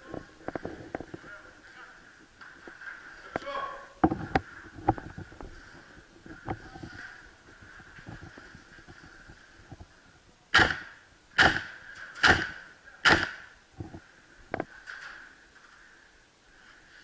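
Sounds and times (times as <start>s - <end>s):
airsoft rifle shots: 10.5s - 13.6s.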